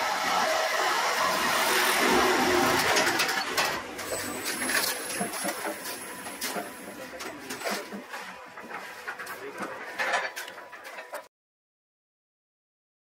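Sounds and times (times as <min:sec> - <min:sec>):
printing press running: 0:00.0 - 0:11.3
machine clatter with clicks: 0:02.7 - 0:11.3.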